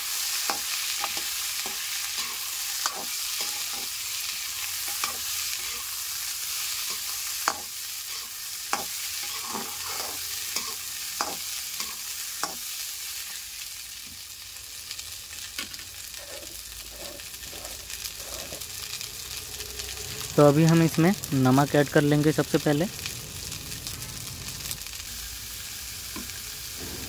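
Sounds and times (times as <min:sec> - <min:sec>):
corn sizzling in hot oil: 0:00.0 - 0:27.0
metal spatula scraping a pan: 0:00.4 - 0:12.7, 0:15.6 - 0:19.0.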